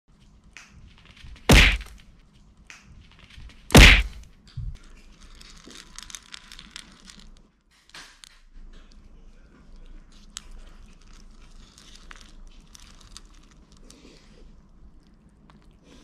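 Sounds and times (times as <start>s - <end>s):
loud thunks: 1.5s - 2.0s, 3.7s - 4.2s
kibble rattling on plastic plate: 3.0s - 8.8s, 10.1s - 13.9s.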